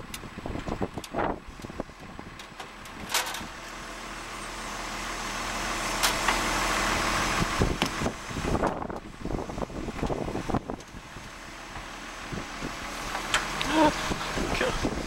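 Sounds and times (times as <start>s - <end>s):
vehicle engine passing: 11.1s - 15.0s.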